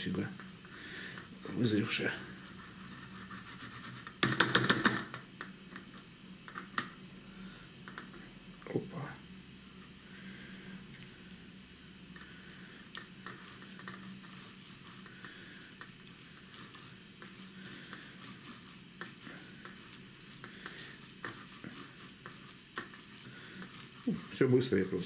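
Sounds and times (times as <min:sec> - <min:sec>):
faint wet squishing: 0:10.4 - 0:25.0.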